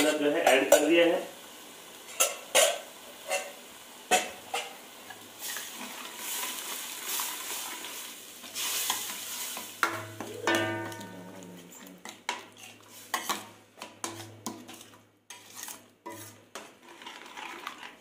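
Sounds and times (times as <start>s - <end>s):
ladle stirring and scraping pan: 0.0s - 1.3s, 1.9s - 18.0s
masala sizzling: 0.0s - 18.0s
ladle clinking against pan: 9.8s - 11.2s.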